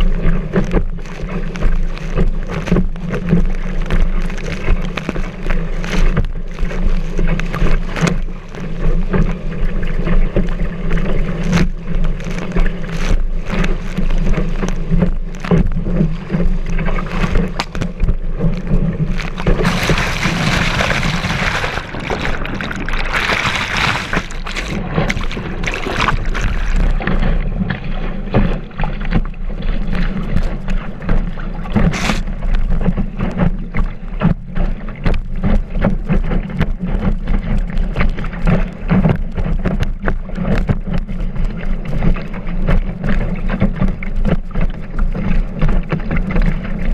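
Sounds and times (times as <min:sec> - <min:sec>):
rushing water and spray: 0:00.0 - 0:35.6
wind rumble on microphone: 0:00.0 - 0:46.9.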